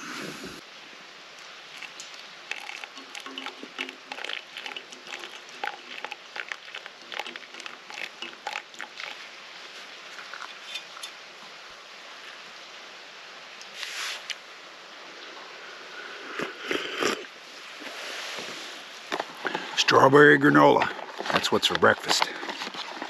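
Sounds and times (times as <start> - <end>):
hot water pouring into coffee bag: 1.6 - 11.1, 17.8 - 23.0
water spattering: 1.6 - 11.1.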